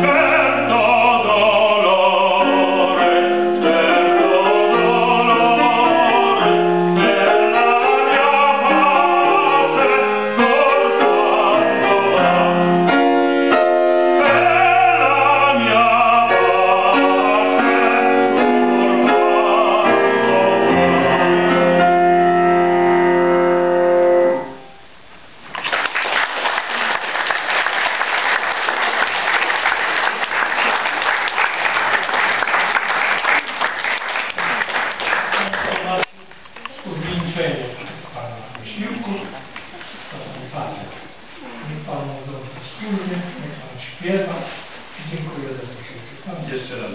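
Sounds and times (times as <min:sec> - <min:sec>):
operatic tenor singing: 0:00.0 - 0:24.4
grand piano accompaniment: 0:00.0 - 0:36.4
audience applauding: 0:25.5 - 0:36.6.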